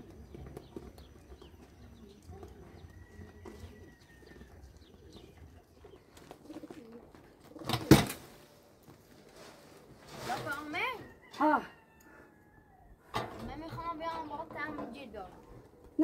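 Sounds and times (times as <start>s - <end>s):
pigeons cooing: 0.0s - 8.7s.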